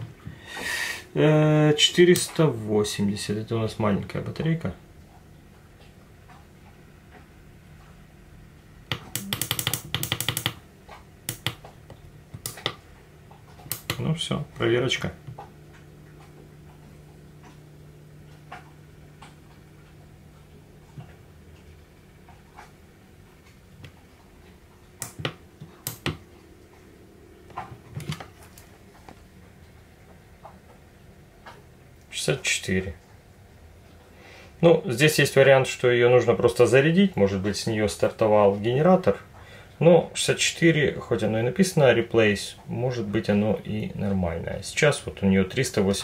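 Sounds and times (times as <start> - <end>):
button clicks: 8.9 - 10.5.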